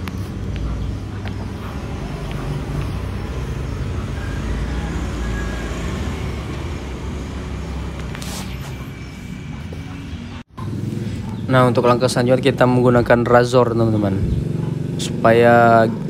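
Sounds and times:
low rumble of road traffic: 0.0 - 16.0.

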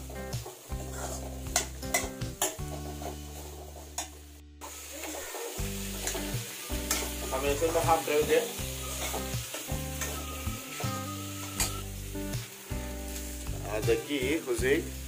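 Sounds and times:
vegetables sizzling in oil: 0.0 - 15.0
spatula scraping metal pan: 0.8 - 4.1, 5.0 - 7.3, 8.8 - 11.8.

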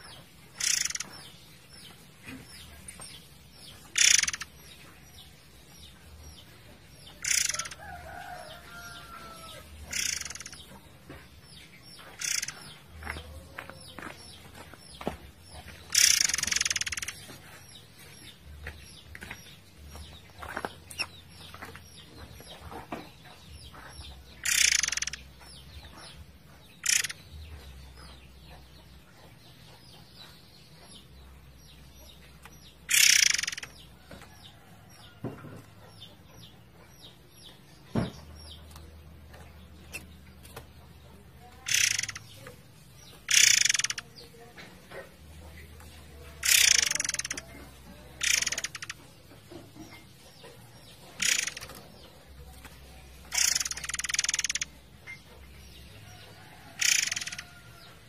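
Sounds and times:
songbird singing: 0.0 - 58.0
faint chirps and clicks: 0.6 - 1.3, 2.3 - 5.0, 9.8 - 11.2, 12.0 - 13.3, 15.5 - 17.3, 23.7 - 26.1, 26.8 - 27.2, 32.4 - 35.2, 41.4 - 58.0.

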